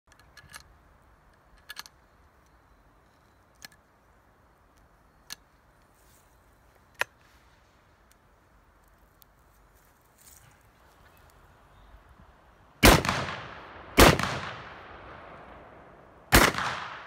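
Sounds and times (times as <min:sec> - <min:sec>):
sharp metallic gun clicks: 0:16.3 - 0:17.0.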